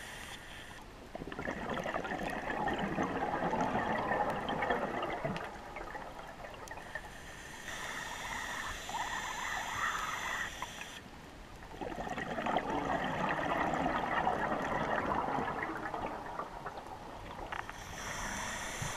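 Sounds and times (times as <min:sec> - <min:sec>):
exhaled bubbles gurgling: 0:01.1 - 0:07.1, 0:11.6 - 0:18.9
diver inhaling through regulator: 0:06.8 - 0:11.0, 0:17.6 - 0:18.9.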